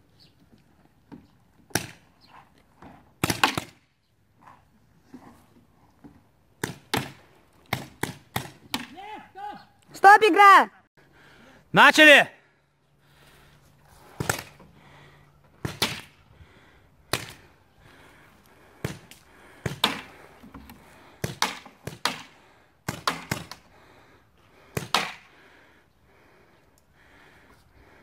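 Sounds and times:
paintball markers firing: 3.2 - 3.8.

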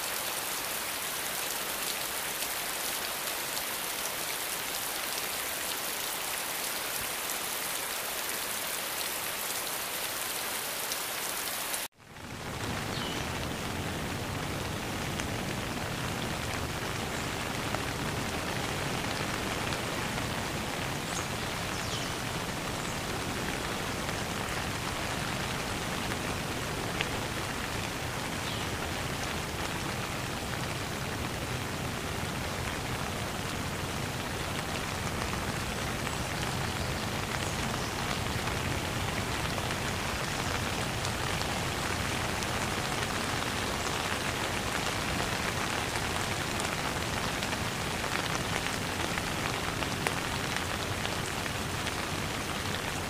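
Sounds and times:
steady rain hiss: 0.0 - 53.0.

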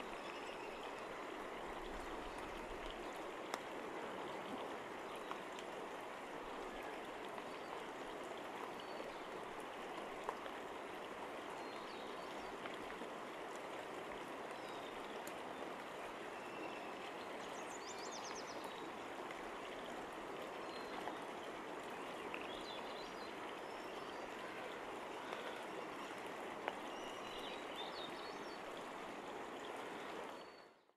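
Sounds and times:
creek water rushing: 0.0 - 30.9.

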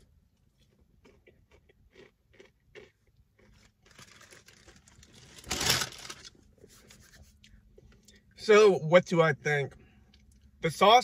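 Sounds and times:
soft chewing with mouth clicks: 0.4 - 3.7
crinkling rustling: 3.5 - 7.4.

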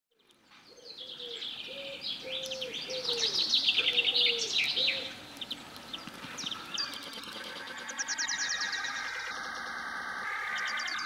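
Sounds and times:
songbirds twittering: 0.1 - 11.0
dove cooing: 0.7 - 5.2, 6.2 - 11.0.

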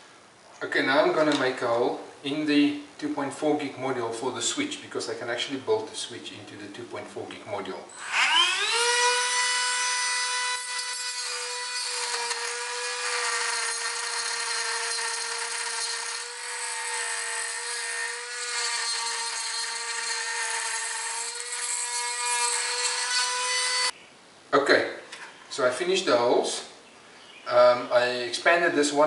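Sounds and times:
rotary tool whining through plastic: 8.0 - 9.8.

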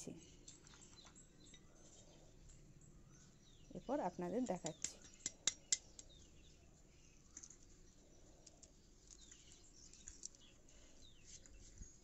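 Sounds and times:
faint bird chirps: 0.0 - 12.0.

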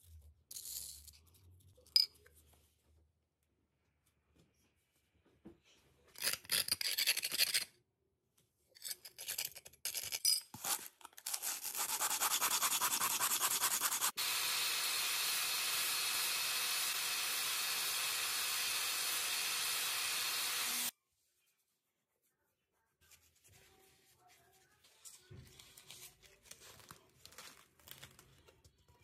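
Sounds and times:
sandpaper scraping tile: 10.6 - 14.2.

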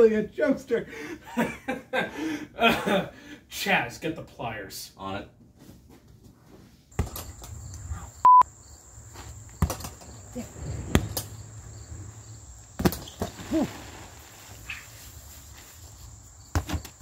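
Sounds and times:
insects droning: 7.0 - 17.0
short loud beep: 8.2 - 8.4.

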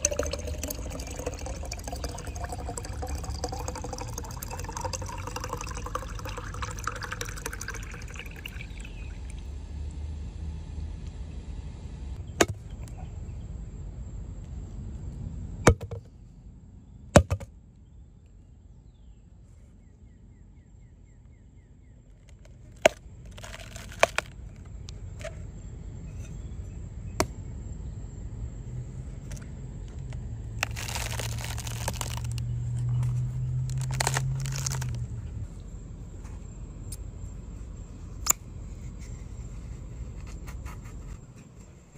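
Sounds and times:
coconut husk crunching and tearing: 22.3 - 25.3, 30.0 - 35.4.

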